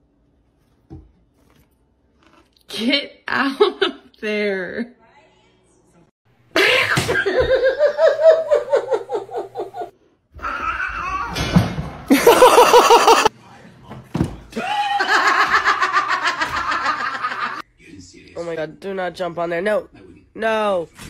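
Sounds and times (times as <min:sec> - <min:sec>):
people laughing: 0:06.6 - 0:09.9, 0:12.1 - 0:13.3, 0:14.6 - 0:17.6.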